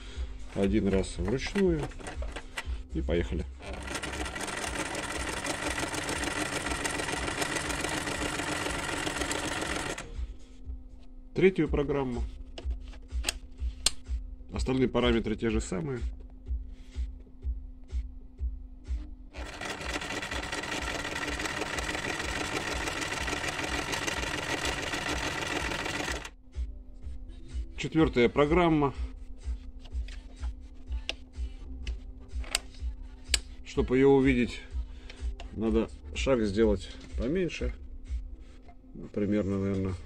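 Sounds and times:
sewing machine clattering: 0:01.4 - 0:02.4, 0:03.6 - 0:10.0, 0:19.4 - 0:26.3.

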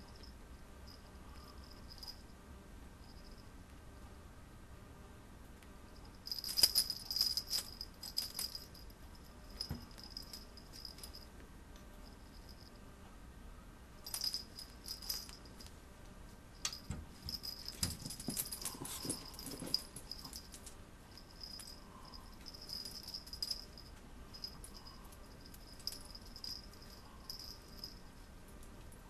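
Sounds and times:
small collar bell jingling: 0:00.0 - 0:02.3, 0:06.0 - 0:11.3, 0:12.0 - 0:12.8, 0:14.0 - 0:15.7, 0:16.6 - 0:28.4.

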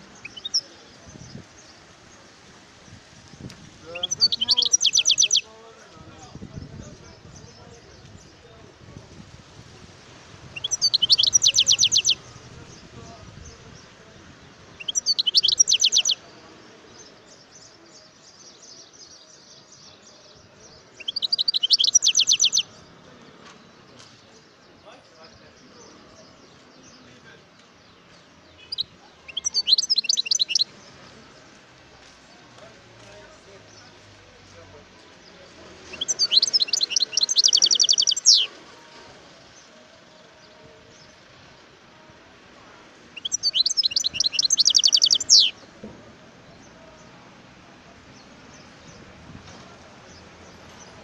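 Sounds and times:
bird singing rapid high notes: 0:00.0 - 0:01.4, 0:03.8 - 0:05.5, 0:10.5 - 0:12.4, 0:14.8 - 0:16.2, 0:21.0 - 0:22.7, 0:28.5 - 0:30.7, 0:35.9 - 0:38.6, 0:43.2 - 0:45.6
faint bird twittering: 0:03.8 - 0:05.4, 0:10.6 - 0:12.3, 0:14.8 - 0:16.2, 0:21.0 - 0:22.7, 0:28.6 - 0:30.7, 0:35.9 - 0:38.6, 0:43.2 - 0:45.6.

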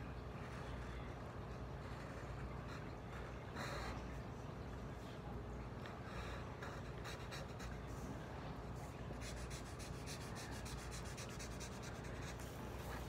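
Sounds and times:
pen scratching on paper: 0:06.6 - 0:08.0, 0:08.8 - 0:13.0.

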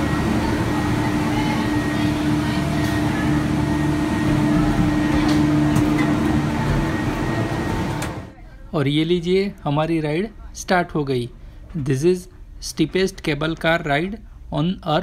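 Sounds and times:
cable car machinery hum: 0:00.0 - 0:08.4.

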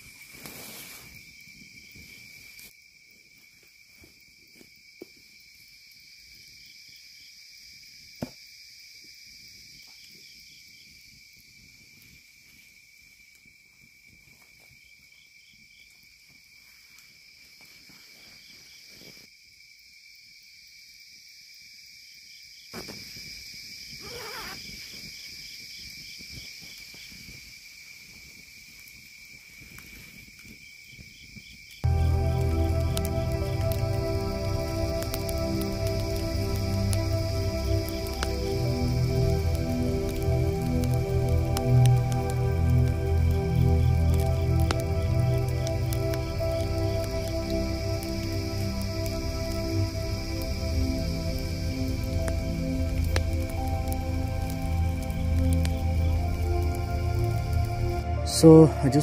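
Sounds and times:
fire popping: 0:00.0 - 0:06.6, 0:22.7 - 0:59.0
campfire burning: 0:00.0 - 0:19.3, 0:22.8 - 0:59.0
crickets and insects trilling: 0:00.0 - 0:59.0.

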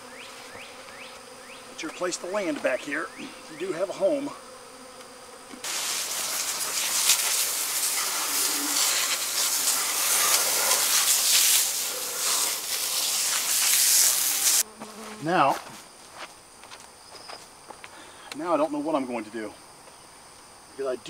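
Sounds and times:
honeybees buzzing: 0:00.0 - 0:19.1
loud steady hiss: 0:05.6 - 0:14.6.

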